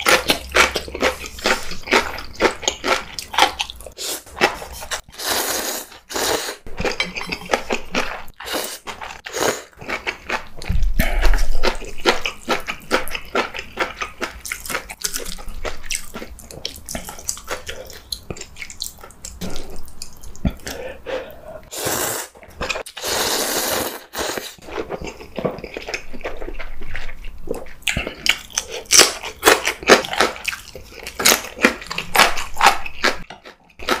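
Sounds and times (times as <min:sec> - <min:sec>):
smacking chews: 0:06.7 - 0:20.9, 0:24.6 - 0:34.0.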